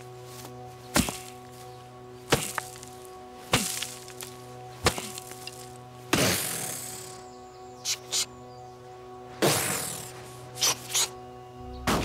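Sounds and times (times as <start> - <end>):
stick whacking a log: 0.9 - 1.4, 2.3 - 2.8, 3.5 - 6.7.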